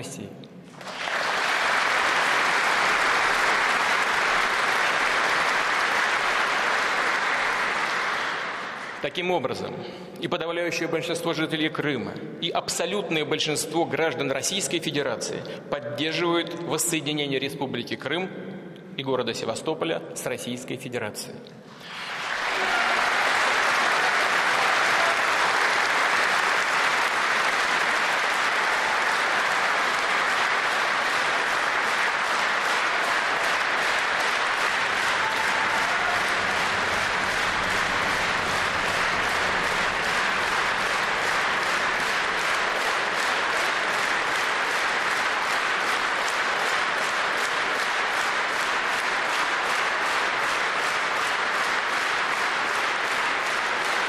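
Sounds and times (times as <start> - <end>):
crowd clapping: 0.6 - 10.0, 21.7 - 54.0.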